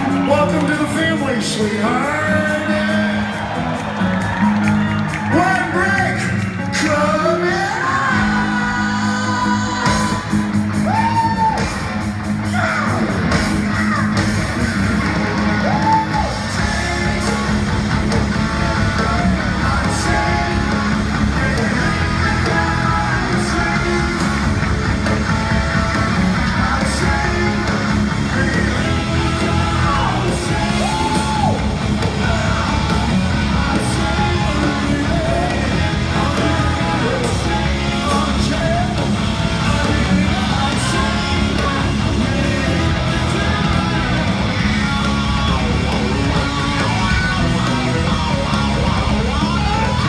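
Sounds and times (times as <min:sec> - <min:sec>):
live hard rock band: 0:00.0 - 0:50.0
singer wailing yells: 0:29.7 - 0:31.7.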